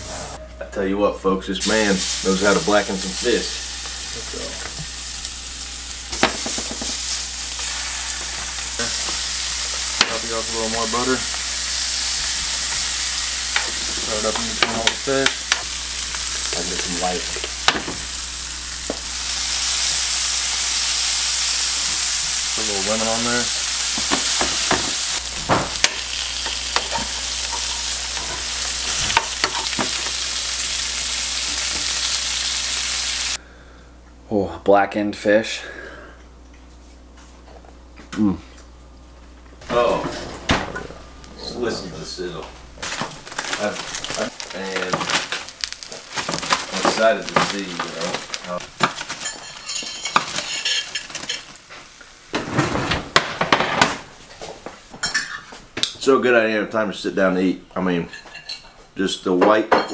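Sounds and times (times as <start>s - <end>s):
fish sizzling in a pan: 1.6s - 33.4s, 42.9s - 51.6s
utensil scraping a pan: 49.2s - 51.5s.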